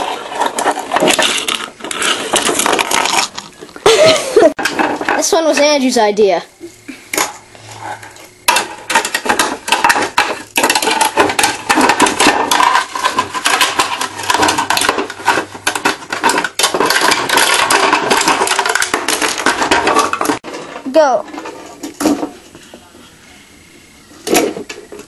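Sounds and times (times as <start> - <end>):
plastic pieces clattering: 0.0 - 5.4, 8.5 - 22.3.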